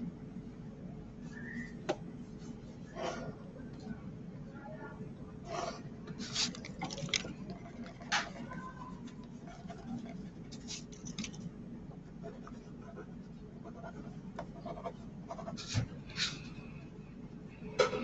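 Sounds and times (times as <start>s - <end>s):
pencil scratching on paper: 12.2s - 15.9s.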